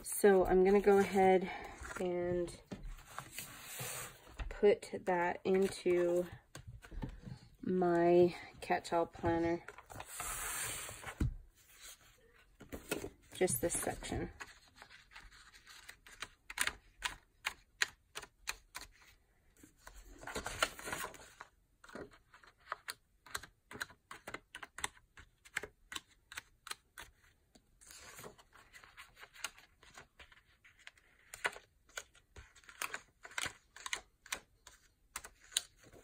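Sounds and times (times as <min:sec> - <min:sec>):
paper sliding and rustling: 0:03.0 - 0:04.4, 0:09.8 - 0:12.1.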